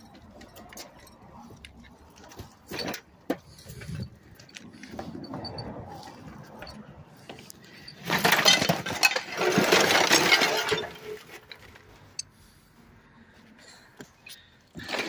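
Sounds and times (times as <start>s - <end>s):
debris clattering onto a pile: 8.0s - 11.8s.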